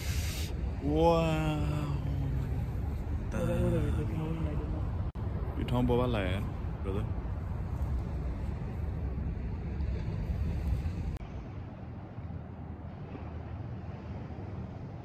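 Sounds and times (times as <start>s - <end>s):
boat engine rumble: 0.0s - 15.0s
wind on microphone: 0.0s - 15.0s.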